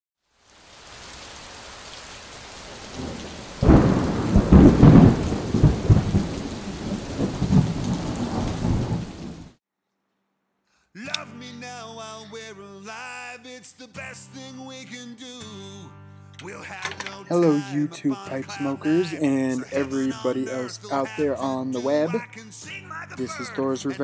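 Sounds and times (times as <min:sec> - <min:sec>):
steady rain: 0:00.2 - 0:09.6
rumbling thunderclap: 0:02.7 - 0:09.6.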